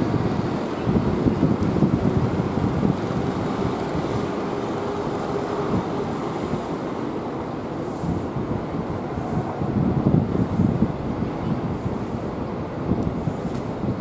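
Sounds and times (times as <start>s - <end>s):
jet engines rumble and whine: 0.0s - 14.0s
wind buffeting microphone: 0.0s - 14.0s.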